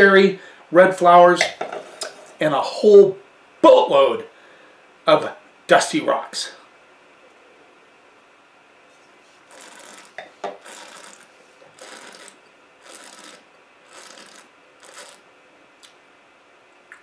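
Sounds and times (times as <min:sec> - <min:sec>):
soft hissy breaths: 0:00.2 - 0:00.8, 0:04.3 - 0:05.0.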